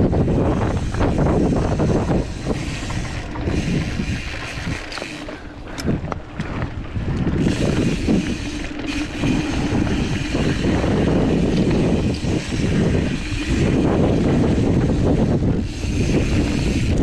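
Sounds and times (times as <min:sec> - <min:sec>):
bike tyres rolling over dirt: 0:00.0 - 0:17.0
wind on microphone: 0:00.0 - 0:17.0.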